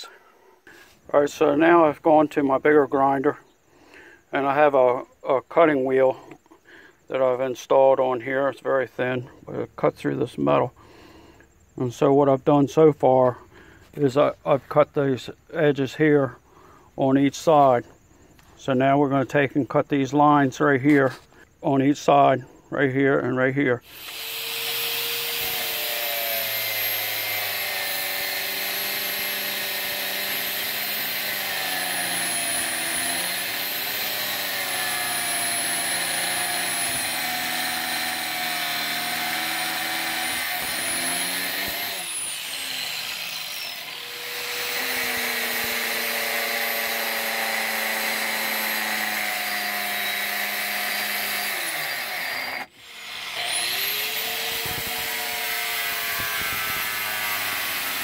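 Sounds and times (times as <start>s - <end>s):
angle grinder cutting steel: 23.8s - 58.0s.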